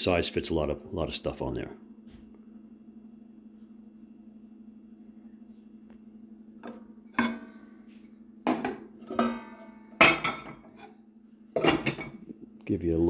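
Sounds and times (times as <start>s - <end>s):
pot lids clinking and clattering: 6.6s - 7.6s, 8.5s - 10.9s, 11.6s - 12.2s.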